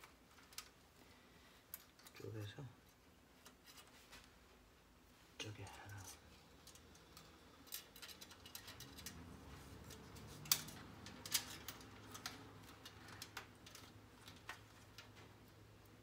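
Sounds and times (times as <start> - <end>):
cables and plastic fittings clicking: 6.6 - 15.5.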